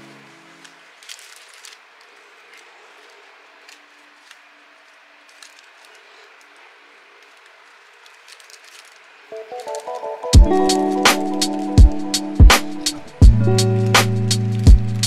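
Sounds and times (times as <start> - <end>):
music: 0.0 - 1.2, 9.3 - 15.0
rustling of stems and plastic wrap: 0.0 - 11.7.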